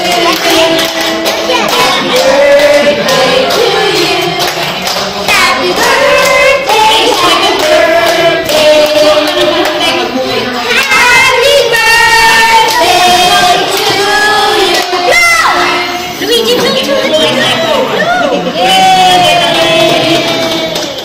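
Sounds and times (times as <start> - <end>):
hand clapping: 0.0 - 2.4
group singing a celebration song: 0.0 - 21.0.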